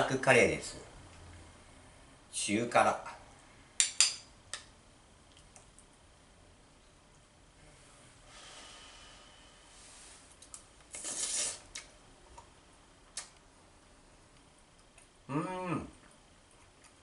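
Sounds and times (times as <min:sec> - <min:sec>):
person slurping: 0:10.9 - 0:11.9.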